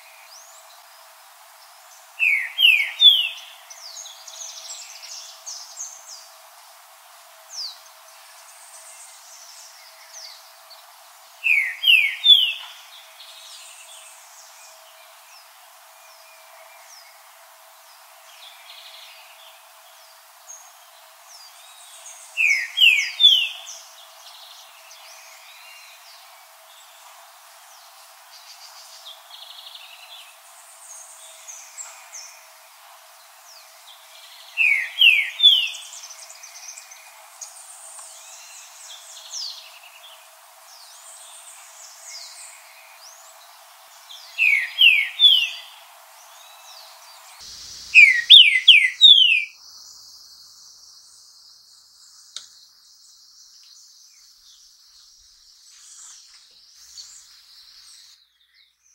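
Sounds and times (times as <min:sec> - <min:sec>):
high insect trill: 0:00.0 - 0:58.1
faint chirps of other birds: 0:00.0 - 0:58.9
bird whistling rising notes: 0:47.9 - 0:49.6.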